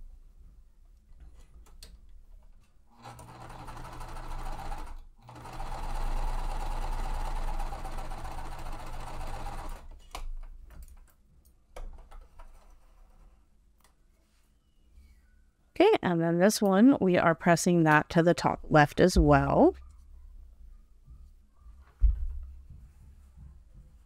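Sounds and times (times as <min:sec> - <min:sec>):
sewing machine stitching: 0:02.9 - 0:10.0.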